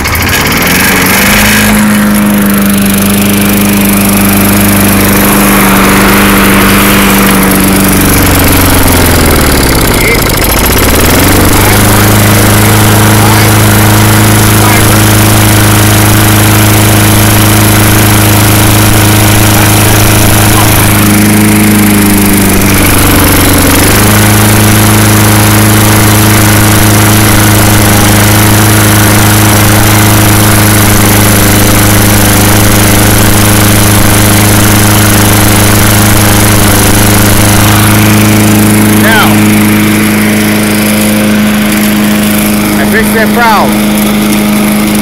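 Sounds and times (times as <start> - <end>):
lawn mower engine running: 0.0 - 45.0.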